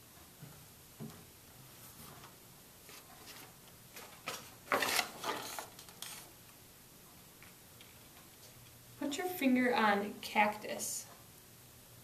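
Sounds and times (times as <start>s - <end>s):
page turning rustles and clicks: 2.9s - 6.3s.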